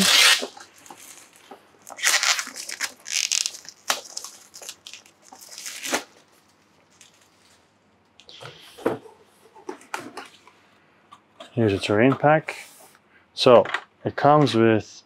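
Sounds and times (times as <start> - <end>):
packaging tearing and rustling: 0.0 - 7.4.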